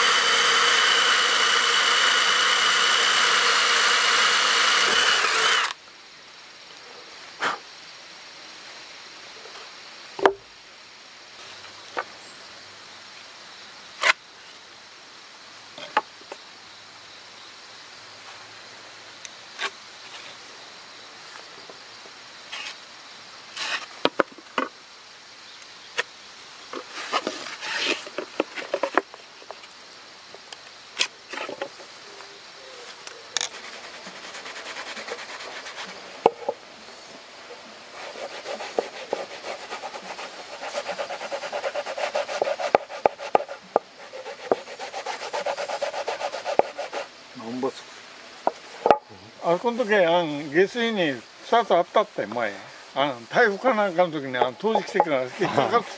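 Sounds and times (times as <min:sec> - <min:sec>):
faint insect drone: 0:00.0 - 0:55.9
wooden boards and tools knocking: 0:10.2 - 0:10.4, 0:23.6 - 0:24.7, 0:26.7 - 0:29.6, 0:31.3 - 0:31.9, 0:35.0 - 0:36.6, 0:38.2 - 0:47.0, 0:48.4 - 0:49.1, 0:54.4 - 0:55.9
scraping and rustling: 0:26.7 - 0:29.6, 0:32.8 - 0:36.6, 0:53.3 - 0:55.9.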